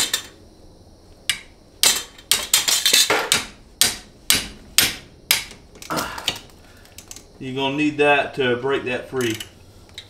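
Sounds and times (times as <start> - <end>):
hammer striking metal ratchet: 1.3 - 5.6.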